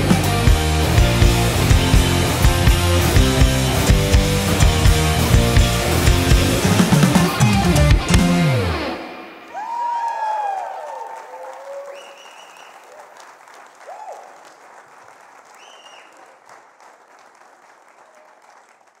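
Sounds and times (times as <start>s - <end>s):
audience applauding and cheering: 0.0s - 19.0s
audience whoops: 9.5s - 14.6s.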